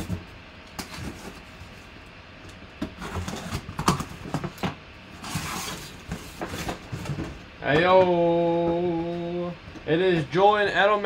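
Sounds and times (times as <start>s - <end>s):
cardboard rustling: 2.9s - 9.3s.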